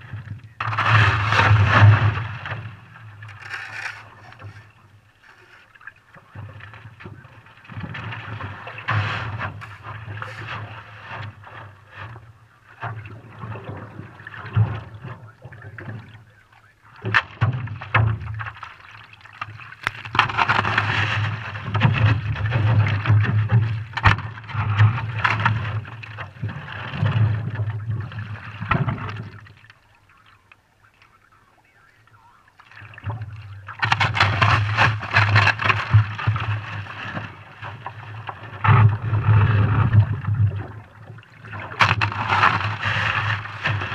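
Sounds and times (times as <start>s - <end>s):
paddle splashing water: 0.0s - 43.9s
ice knocking: 3.3s - 4.7s.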